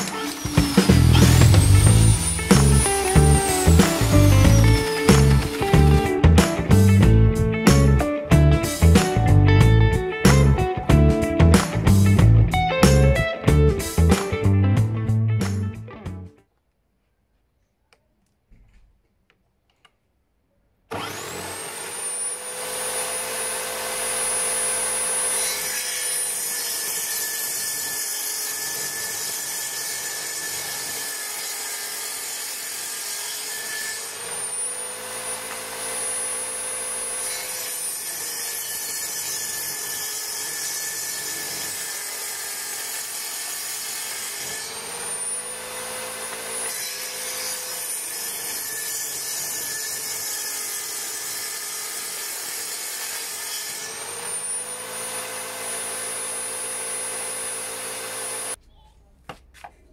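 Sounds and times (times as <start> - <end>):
saw blade and drill whine: 0.0 - 6.4, 20.9 - 58.6
saw ripping chipboard: 0.0 - 7.0, 20.9 - 58.6.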